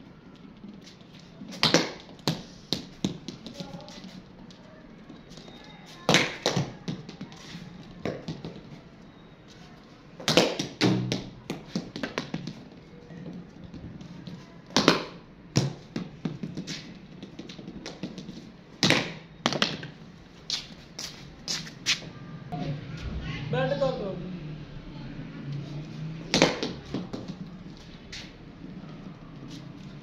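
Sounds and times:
ball bouncing on concrete: 0:00.3 - 0:08.8, 0:10.2 - 0:21.6, 0:26.2 - 0:28.8
cricket bat hitting ball: 0:26.3 - 0:27.3.

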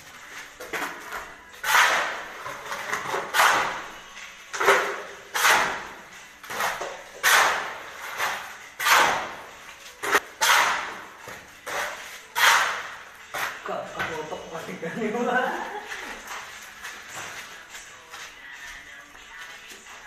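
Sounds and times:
shovel scraping on concrete: 0:00.6 - 0:13.6.

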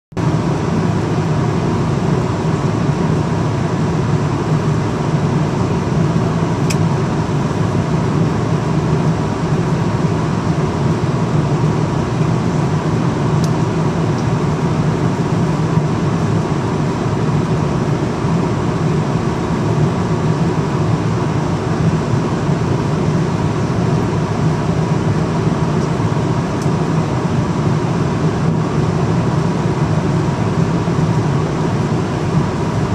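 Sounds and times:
airliner cabin engine rush: 0:00.2 - 0:32.9.

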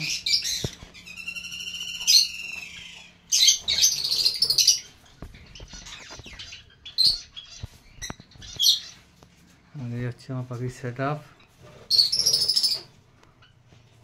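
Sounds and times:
lovebirds shrill shrieks: 0:00.0 - 0:09.1, 0:11.4 - 0:13.6
lovebirds harsh screeches: 0:00.0 - 0:09.2, 0:11.4 - 0:13.6
lovebirds buzzy chatter: 0:00.0 - 0:09.3.

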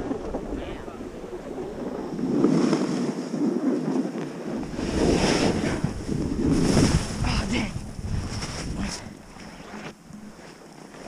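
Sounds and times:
wind on microphone: 0:00.0 - 0:11.0
edges carving through snow: 0:04.6 - 0:09.8.

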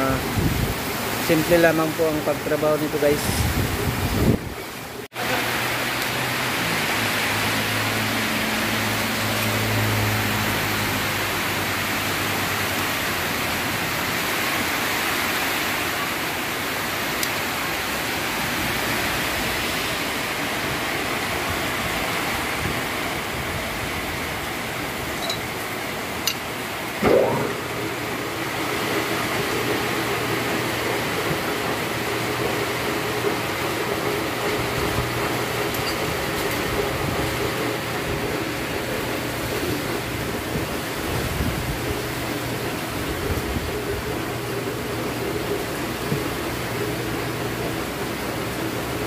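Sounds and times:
rain hissing: 0:00.0 - 0:48.7
low hum: 0:27.0 - 0:28.4.

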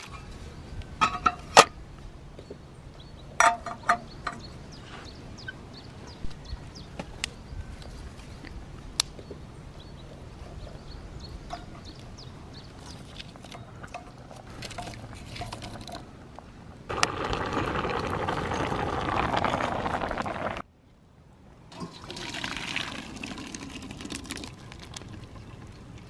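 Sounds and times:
pot boiling and bubbling: 0:11.5 - 0:20.7, 0:21.7 - 0:26.0
wooden clatter: 0:12.8 - 0:16.1.

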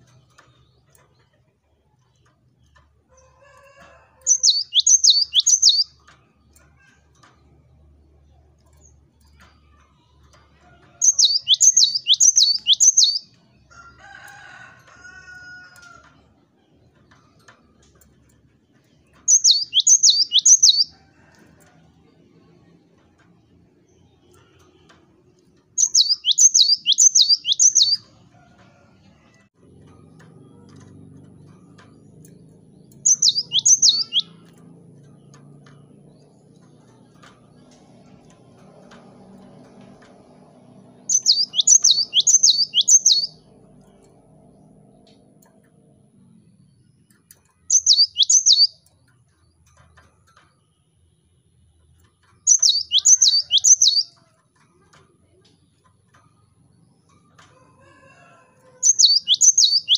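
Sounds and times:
bird singing sharp high notes: 0:11.0 - 0:13.2, 0:19.3 - 0:20.9, 0:25.8 - 0:28.0, 0:33.0 - 0:34.4, 0:41.1 - 0:43.4, 0:47.7 - 0:48.8.

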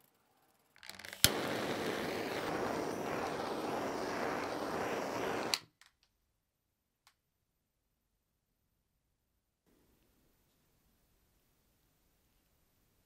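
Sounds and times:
gas torch flame hissing: 0:01.0 - 0:05.7
gas torch igniter clicks: 0:01.1 - 0:05.7.

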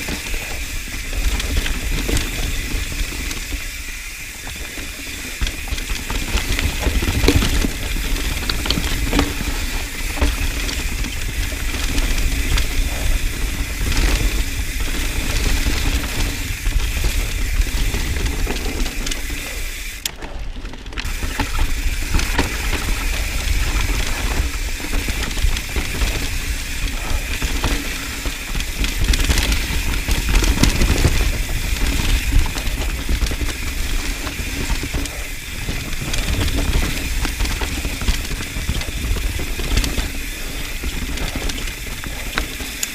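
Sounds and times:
bike knocking and rattling: 0:00.0 - 0:42.9
tyre noise on dirt: 0:00.0 - 0:42.9
wind rumbling on microphone: 0:00.0 - 0:42.9.

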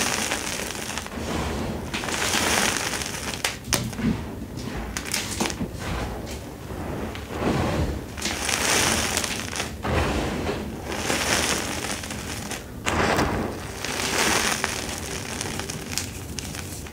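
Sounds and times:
hands crushing chalk: 0:11.0 - 0:16.9.

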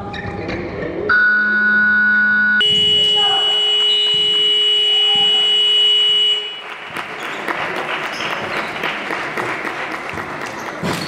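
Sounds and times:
scoreboard buzzer tone: 0:01.1 - 0:06.7
court noises: 0:02.6 - 0:11.0
indistinct voices: 0:02.7 - 0:05.8.

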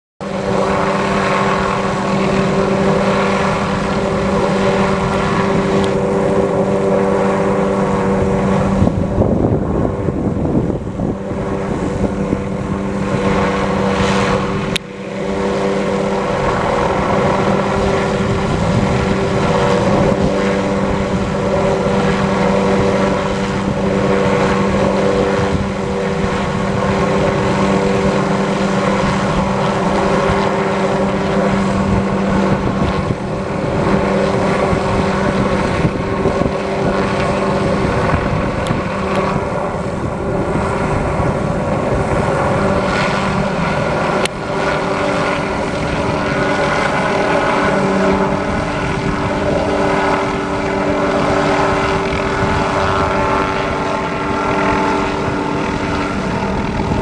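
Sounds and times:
helicopter hovering overhead: 0:00.2 - 0:57.0.

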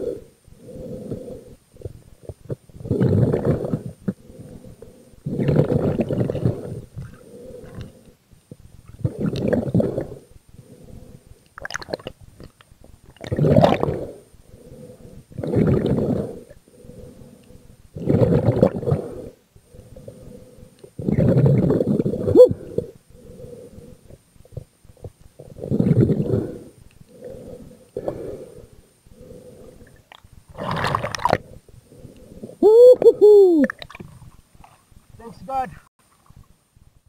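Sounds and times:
breathing through a snorkel: 0:00.0 - 0:02.0, 0:02.8 - 0:08.2, 0:09.0 - 0:11.4, 0:13.5 - 0:24.2, 0:25.4 - 0:32.6
faint steady hum: 0:00.0 - 0:37.0.

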